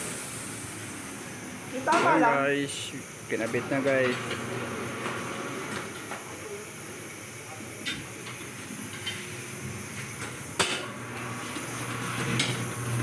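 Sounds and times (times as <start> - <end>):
steady hiss: 0.0 - 3.4.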